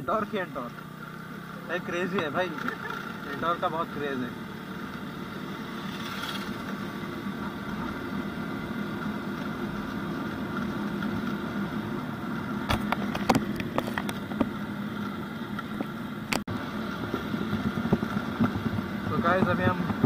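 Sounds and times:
scooter engine running: 0.0s - 20.0s
sharp clicks and knocks: 12.7s - 14.5s.

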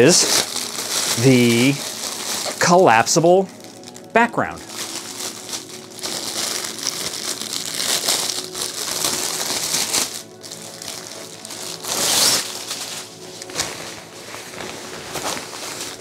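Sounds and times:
plastic wrapping crinkling: 0.0s - 16.0s.

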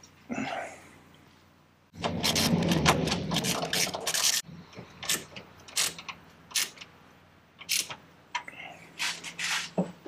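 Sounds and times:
ratchet wrench clicking: 7.6s - 8.0s.

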